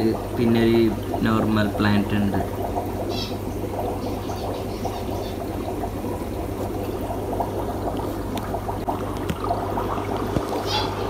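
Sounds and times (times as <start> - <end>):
air bubbling in aquarium filter: 0.0 - 11.0
low steady hum: 0.0 - 11.0.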